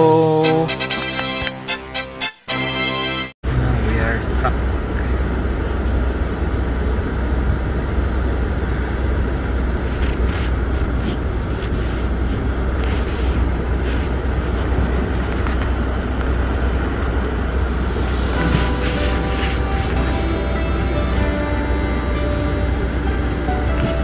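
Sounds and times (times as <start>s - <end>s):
car engine and tyres rumbling: 3.4s - 24.0s
short brushing noises: 10.2s - 14.5s, 18.1s - 20.0s.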